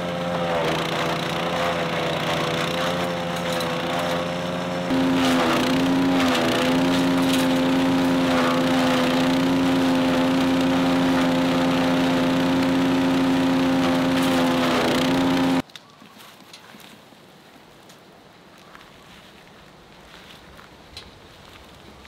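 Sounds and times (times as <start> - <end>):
rushing chipping noise: 0.0 - 15.6
wood chipper engine hum: 0.0 - 15.6.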